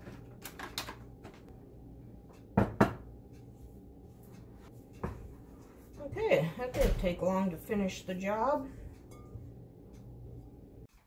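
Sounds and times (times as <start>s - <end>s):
kitchenware knocking on countertop: 2.6s - 3.1s.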